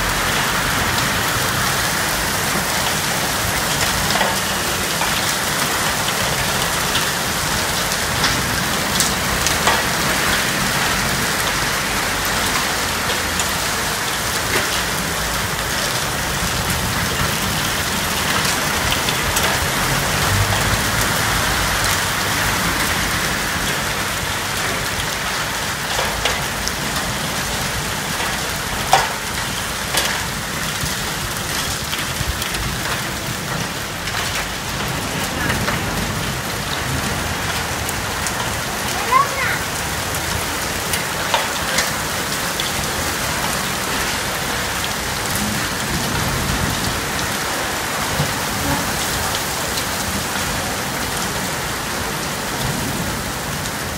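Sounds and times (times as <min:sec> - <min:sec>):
hail ticking on surfaces: 0:00.0 - 0:53.9
heavy rain hissing: 0:32.1 - 0:53.9.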